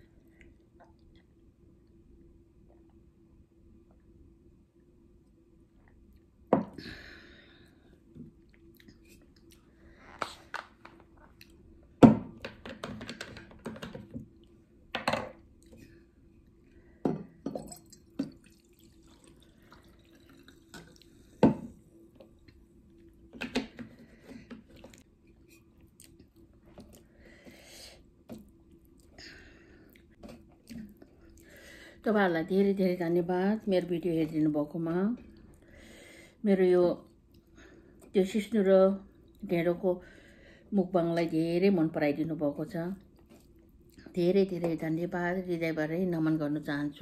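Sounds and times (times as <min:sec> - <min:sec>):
faint steady hum: 0:00.0 - 0:47.0
water poured into glass: 0:17.6 - 0:21.5
chewing: 0:25.7 - 0:27.1.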